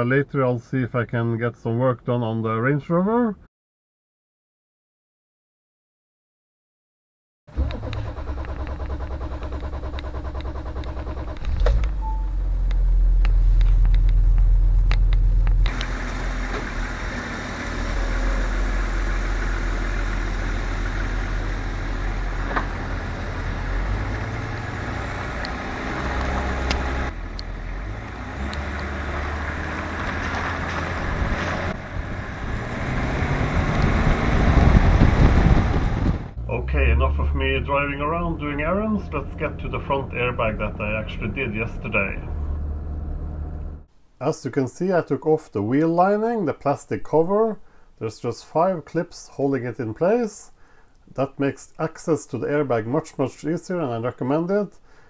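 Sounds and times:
car engine idling: 0:07.5 - 0:28.0, 0:36.3 - 0:43.9
tyre noise on wet road: 0:07.6 - 0:36.9
wind: 0:07.6 - 0:44.2.

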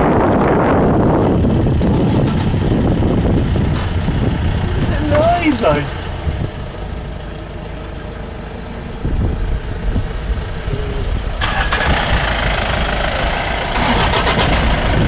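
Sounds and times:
jeep engine running: 0:00.0 - 0:15.0
wind and tyre noise: 0:00.0 - 0:15.0.

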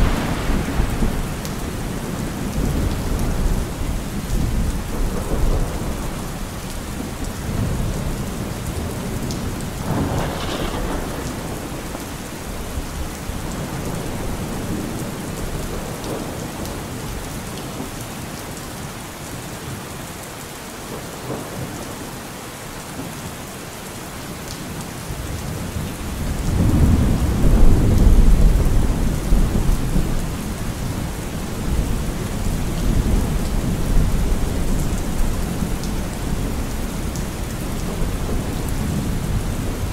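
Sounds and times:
rolling thunder: 0:00.0 - 0:17.2, 0:26.0 - 0:39.9
steady rain: 0:00.0 - 0:39.9.

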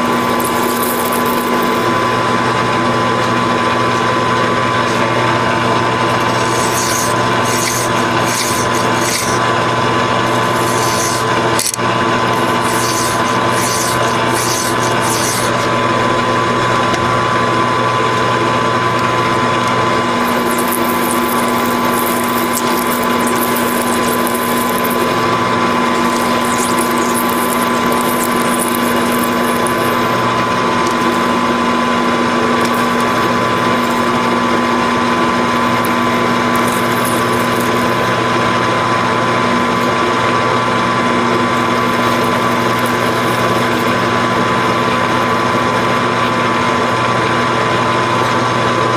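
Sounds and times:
hissing rubbing on turning part: 0:00.0 - 0:02.2, 0:04.8 - 0:15.7, 0:20.1 - 0:38.3, 0:41.3 - 0:46.4
metal lathe whining: 0:00.0 - 0:48.9
hand file rasping on steel: 0:06.1 - 0:09.5, 0:10.2 - 0:15.7, 0:20.2 - 0:30.2.

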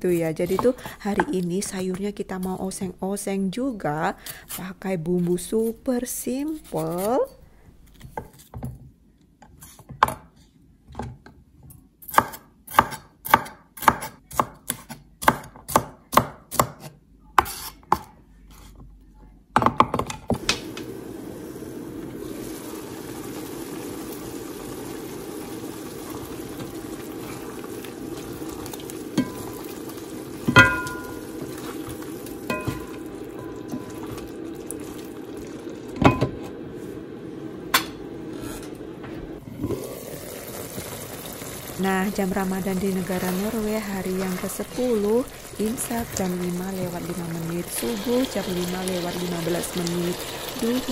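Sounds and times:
sauce simmering in pan: 0:20.4 - 0:50.9.

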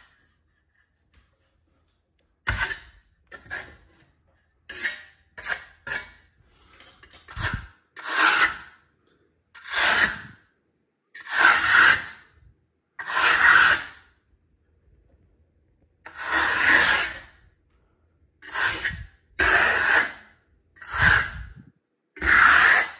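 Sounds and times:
hand tool rubbing plaster wall: 0:00.0 - 0:08.8, 0:09.6 - 0:10.4, 0:11.2 - 0:12.4, 0:13.0 - 0:14.2, 0:16.1 - 0:17.4, 0:18.4 - 0:22.9.

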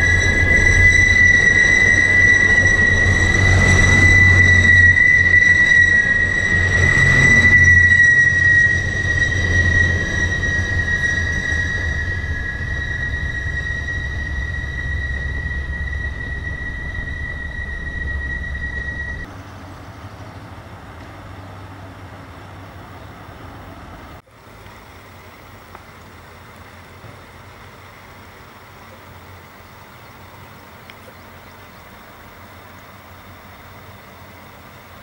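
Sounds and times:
train wheels squealing on track: 0:00.0 - 0:19.3
low rumble of rolling train cars: 0:00.0 - 0:35.0.

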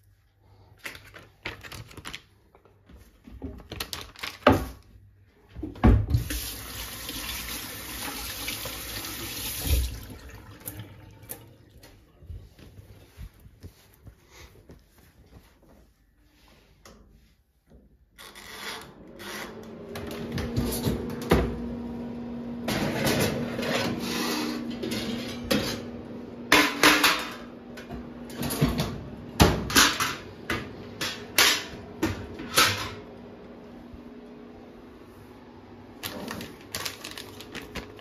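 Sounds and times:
oven door opening and shutting: 0:22.6 - 0:26.0.

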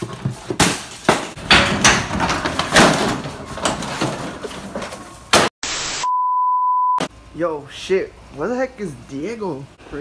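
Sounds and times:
knocks and clatter: 0:00.0 - 0:05.5
high test-card beep: 0:06.0 - 0:07.1.

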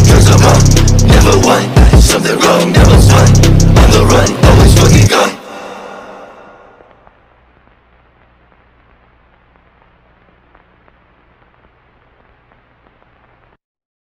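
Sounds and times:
crackling static: 0:06.2 - 0:13.6
low steady hum: 0:06.2 - 0:13.6.

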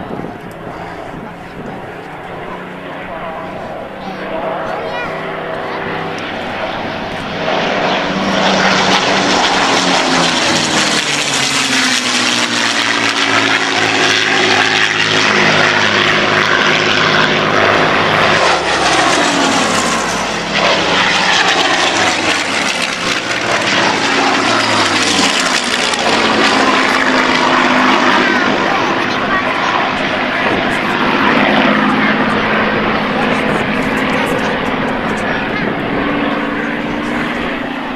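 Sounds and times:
propeller planes flying past: 0:00.0 - 0:37.9.

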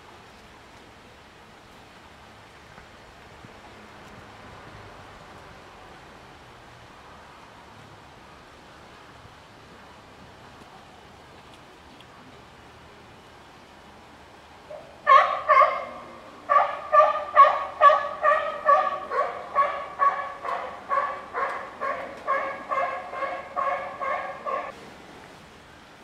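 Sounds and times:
animal calling repeatedly: 0:15.0 - 0:24.7.

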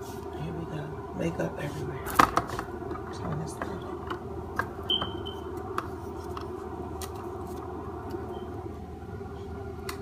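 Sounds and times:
steady room hum: 0:00.0 - 0:10.0.

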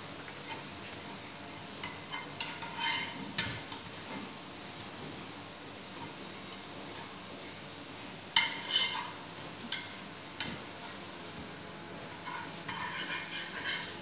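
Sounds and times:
spatula scraping frying pan: 0:01.8 - 0:03.5, 0:08.4 - 0:09.2, 0:12.1 - 0:14.0.

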